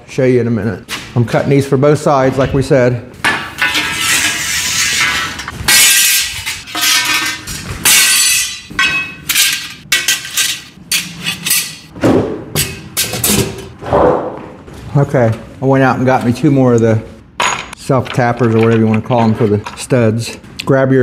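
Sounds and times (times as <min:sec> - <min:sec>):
metal cutter snapping steel: 0:03.3 - 0:11.9
steel ringing: 0:03.6 - 0:11.9.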